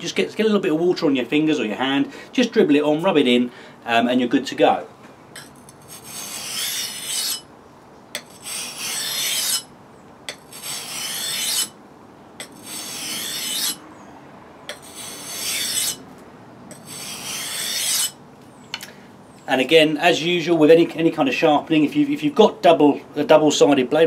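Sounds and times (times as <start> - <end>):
axe grinding on a waterstone: 5.4 - 7.5, 8.2 - 9.7, 10.3 - 11.8, 12.4 - 13.8, 14.7 - 16.0, 16.7 - 18.2
blade tapping on stone: 8.2 - 8.4, 10.3 - 10.5.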